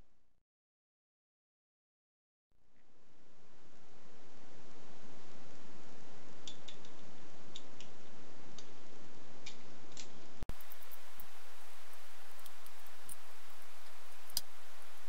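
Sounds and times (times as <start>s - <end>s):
steady hiss: 10.5s - 15.0s.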